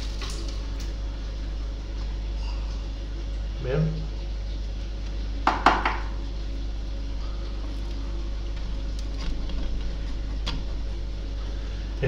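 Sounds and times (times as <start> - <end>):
steady low hum: 0.0 - 12.0
bottle knocking on wooden table: 5.5 - 6.1.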